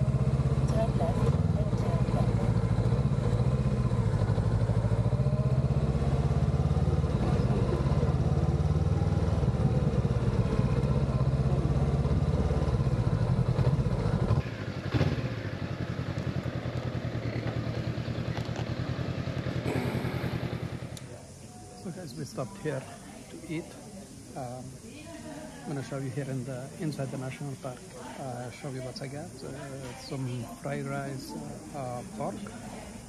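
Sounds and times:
motorcycle engine running: 0:00.0 - 0:22.3.

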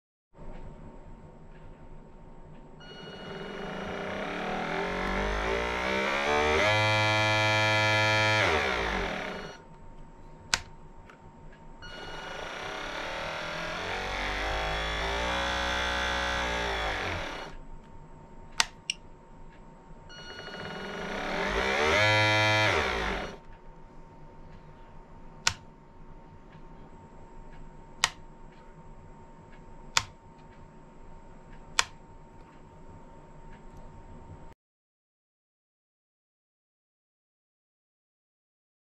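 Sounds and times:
electric motor whine: 0:02.8 - 0:09.6, 0:11.8 - 0:17.6, 0:20.1 - 0:23.4
switch clicks: 0:10.5 - 0:10.8, 0:18.6 - 0:19.1, 0:25.4 - 0:25.7, 0:28.0 - 0:28.2, 0:29.9 - 0:30.2, 0:31.8 - 0:32.0.

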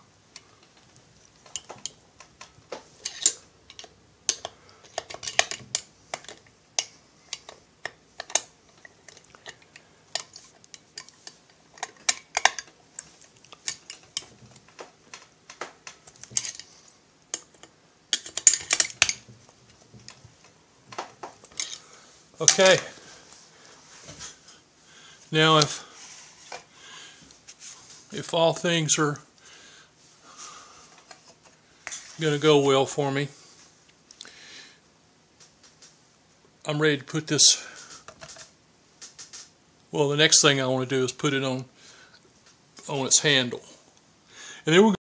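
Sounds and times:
hand tool and metal parts clicking: 0:00.3 - 0:19.3, 0:21.4 - 0:21.8.

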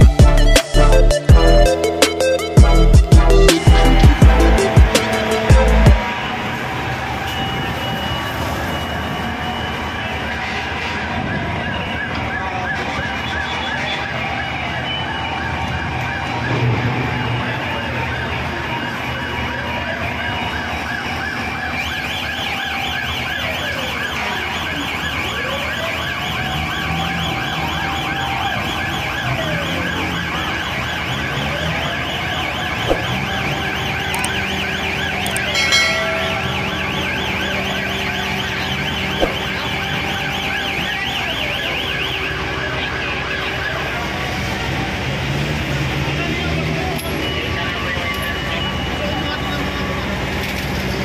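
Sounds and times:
loud horn blast: 0:00.0 - 0:08.3, 0:35.5 - 0:40.8
siren yelping: 0:00.0 - 0:10.4, 0:11.3 - 0:44.8
siren wailing: 0:00.0 - 0:45.2.

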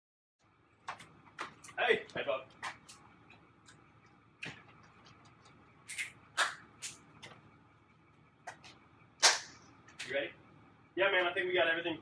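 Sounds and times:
hand slaps and claps: 0:09.2 - 0:09.6.

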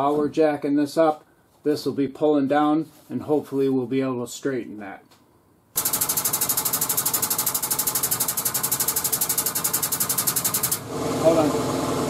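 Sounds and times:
air pump chattering rapidly: 0:05.8 - 0:11.4.

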